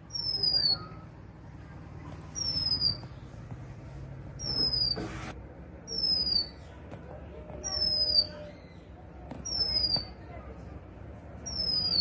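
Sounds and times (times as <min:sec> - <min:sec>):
bird whistling call: 0:00.1 - 0:01.0, 0:02.4 - 0:03.0, 0:04.4 - 0:05.0, 0:05.9 - 0:06.6, 0:07.7 - 0:08.6, 0:09.5 - 0:10.1, 0:11.4 - 0:12.0.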